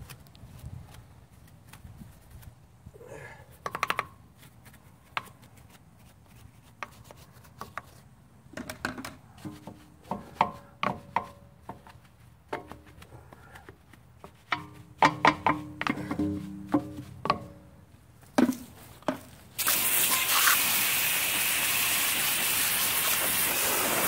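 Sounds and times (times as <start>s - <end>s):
brush scrubbing a wheel: 4.4s - 8.1s.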